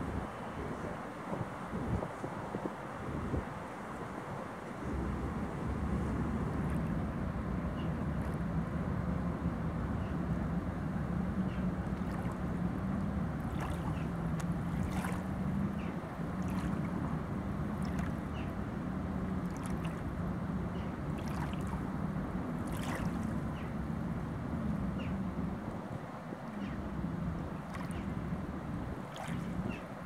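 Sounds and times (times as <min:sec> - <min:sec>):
steady low hum: 0:00.0 - 0:30.0
small waves lapping on pebbles: 0:14.8 - 0:15.3, 0:22.7 - 0:23.3.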